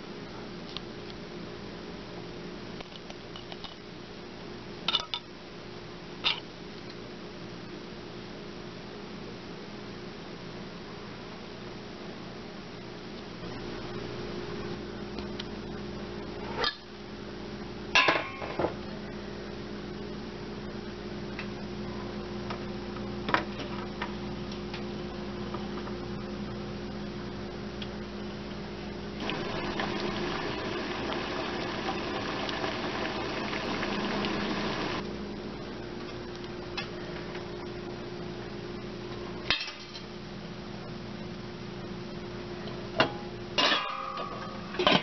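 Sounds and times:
steady low hum: 18.7 - 43.6
steam escaping under a lid: 29.2 - 35.0
water boiling in a pot: 29.2 - 35.0.

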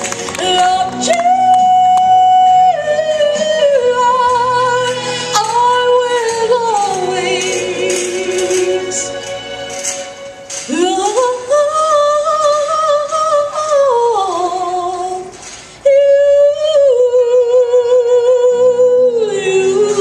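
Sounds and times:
woman singing a slow ballad: 0.2 - 9.2, 10.6 - 20.0.

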